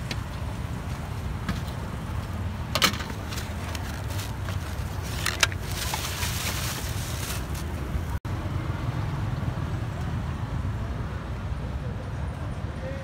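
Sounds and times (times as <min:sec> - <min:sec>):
low traffic rumble: 0:00.0 - 0:13.0
plastic bags crinkling: 0:03.4 - 0:07.8.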